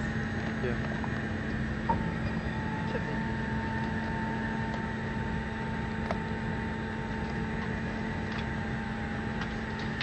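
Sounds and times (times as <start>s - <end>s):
airliner cabin drone: 0.0s - 10.0s.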